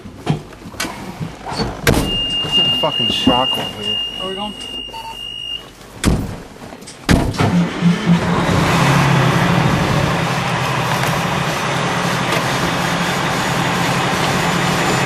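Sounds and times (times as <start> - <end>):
road noise: 0.0 - 4.8, 5.6 - 15.0
heavy thumps: 1.2 - 3.5, 6.0 - 7.6
diesel engine running: 7.2 - 15.0.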